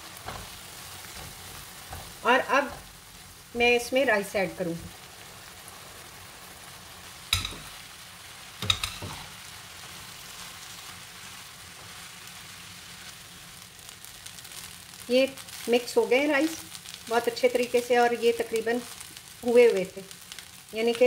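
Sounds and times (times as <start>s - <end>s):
spatula stirring rice: 0.0s - 3.5s, 8.6s - 15.9s, 16.5s - 21.0s
corn sizzling in a pan: 0.0s - 21.0s
knocks against a pan: 7.3s - 7.8s, 8.6s - 9.3s.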